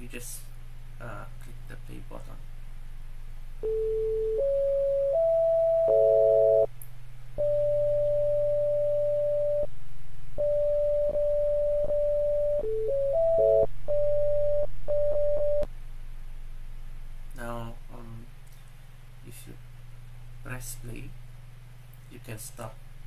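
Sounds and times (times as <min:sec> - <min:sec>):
sine-wave synthesizer tones: 0:03.6 - 0:06.7, 0:07.4 - 0:09.7, 0:10.4 - 0:15.7.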